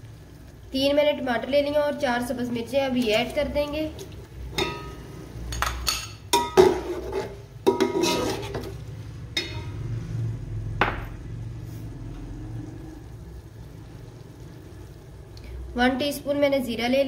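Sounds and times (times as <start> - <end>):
metal spatula clanking on pot: 4.5 - 9.8.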